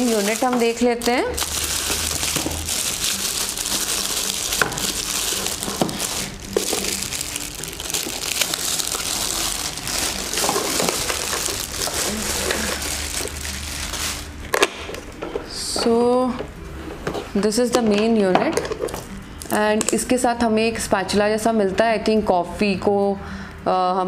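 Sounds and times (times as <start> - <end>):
plastic bag crinkling: 0.0 - 14.5.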